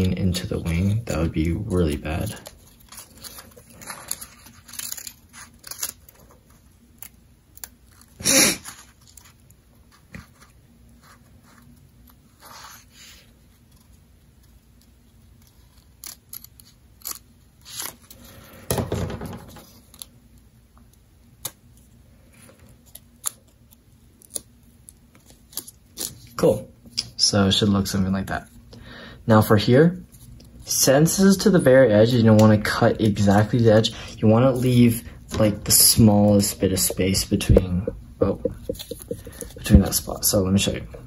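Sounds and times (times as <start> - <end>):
paper rustling: 0.3 - 18.6, 31.9 - 40.9
loud paper crunches: 2.0 - 6.3
scissors snipping paper: 2.1 - 6.3, 14.8 - 18.1.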